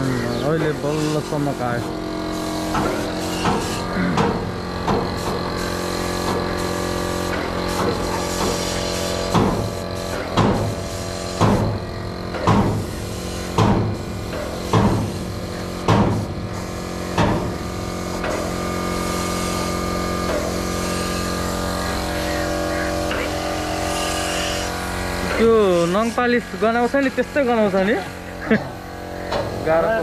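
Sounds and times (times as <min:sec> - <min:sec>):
spray painting machine hum: 0:00.0 - 0:30.0
sharp knocks: 0:02.8 - 0:05.1, 0:09.3 - 0:09.7, 0:11.4 - 0:11.7, 0:12.4 - 0:12.8, 0:13.6 - 0:13.9, 0:14.7 - 0:15.1, 0:15.9 - 0:16.2.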